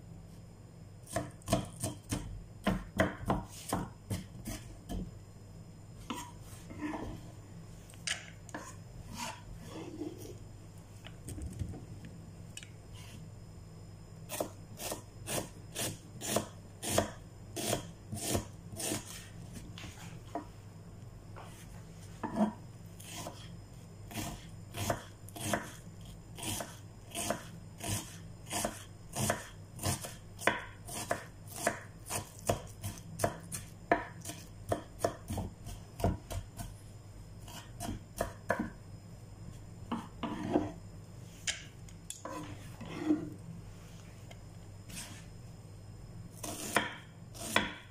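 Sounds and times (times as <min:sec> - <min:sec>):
knife chopping on wooden board: 0:01.1 - 0:05.0, 0:14.3 - 0:19.1, 0:24.1 - 0:25.8, 0:26.4 - 0:36.7, 0:46.4 - 0:47.9.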